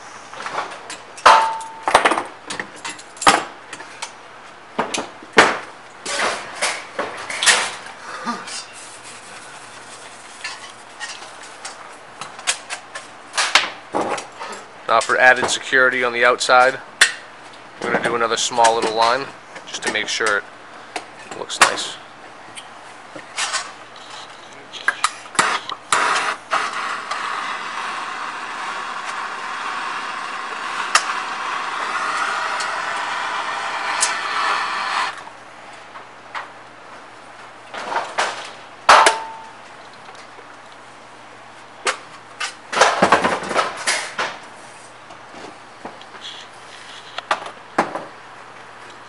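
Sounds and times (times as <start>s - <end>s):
torch flame hissing: 25.4s - 35.2s.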